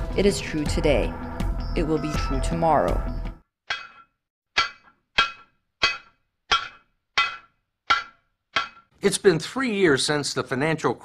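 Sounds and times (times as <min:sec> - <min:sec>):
hammer striking anvil: 0:03.7 - 0:08.9.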